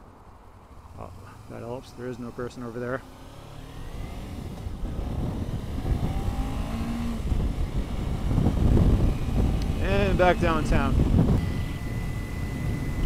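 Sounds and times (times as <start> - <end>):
motorcycle engine accelerating: 0.4 - 13.0
wind noise on microphone: 3.7 - 13.0.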